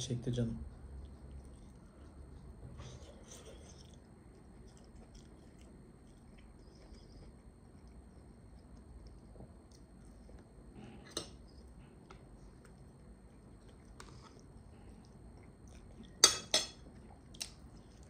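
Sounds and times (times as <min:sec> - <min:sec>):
faint chewing: 0:00.6 - 0:18.0.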